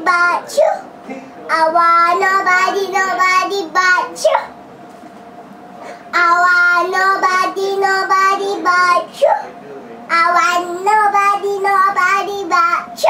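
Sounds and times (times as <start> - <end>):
little girl singing: 1.5 - 4.5, 6.2 - 9.4, 10.1 - 13.0.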